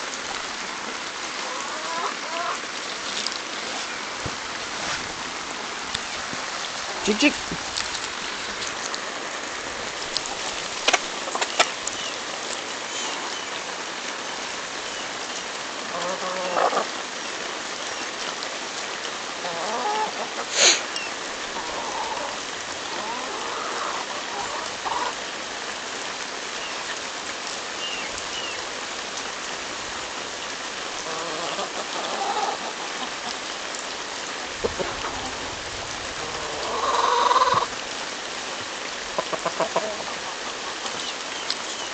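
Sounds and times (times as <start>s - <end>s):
chickens clucking: 1.4s - 4.4s, 10.1s - 12.2s, 15.9s - 16.9s, 19.4s - 25.2s, 31.0s - 33.5s, 34.5s - 35.5s, 36.1s - 37.8s, 39.1s - 41.9s
steady hiss: 20.3s - 25.8s.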